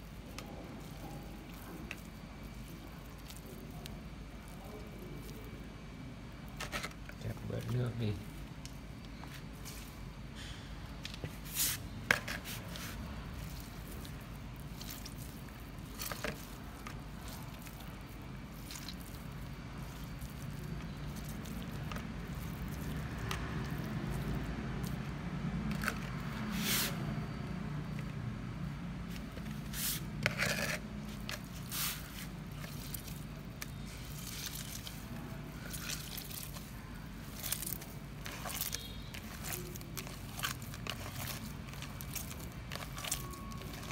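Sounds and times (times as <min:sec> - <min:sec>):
wet bread squished and dripping: 0:00.0 - 0:05.8, 0:13.0 - 0:28.3, 0:31.3 - 0:43.9
bread kneaded against bowl: 0:00.0 - 0:10.2, 0:10.9 - 0:43.9
sharp clicks and scrapes: 0:29.1 - 0:35.0.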